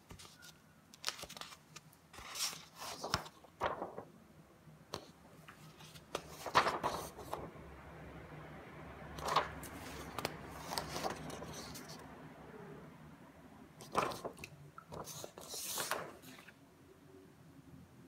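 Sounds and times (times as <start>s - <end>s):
paper rustling: 0.0s - 4.1s, 5.0s - 7.5s, 9.2s - 12.0s, 13.8s - 16.6s.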